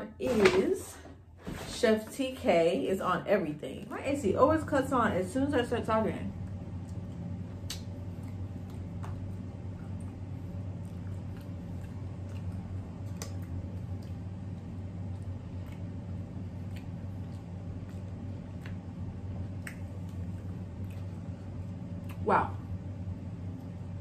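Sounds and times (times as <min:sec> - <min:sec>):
air conditioner humming: 0:00.0 - 0:24.0
wet eating clicks and smacks: 0:06.4 - 0:22.3.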